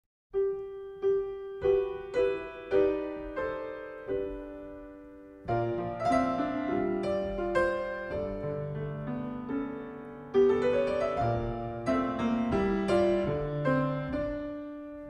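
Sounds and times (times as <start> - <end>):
piano melody: 0.3 - 15.0.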